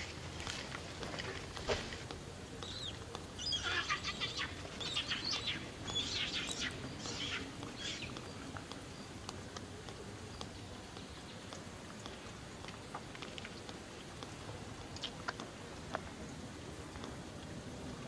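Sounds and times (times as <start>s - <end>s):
baby monkey crying: 2.8s - 8.0s.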